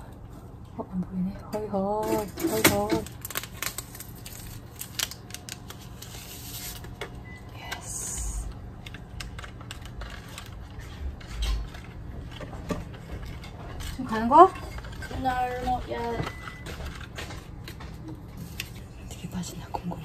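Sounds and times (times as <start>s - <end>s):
plastic containers clicking and clattering: 2.0s - 3.8s.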